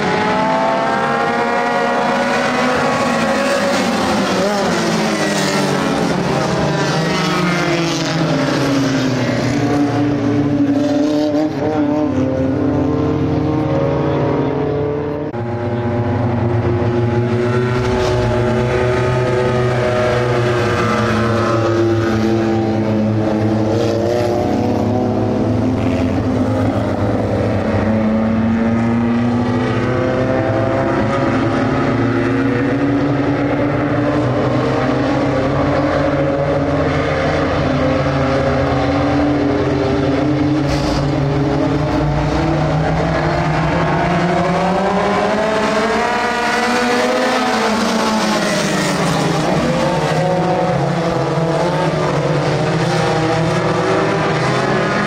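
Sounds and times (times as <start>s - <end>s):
race car engines revving: 0.0s - 55.0s.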